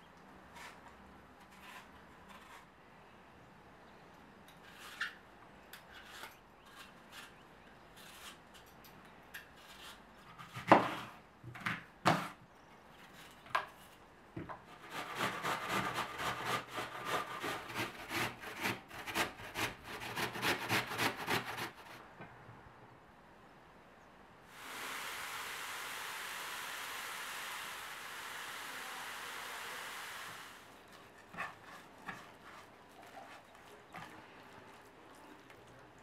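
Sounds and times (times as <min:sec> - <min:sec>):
apple grated on metal grater: 0:14.8 - 0:22.0, 0:31.2 - 0:32.8.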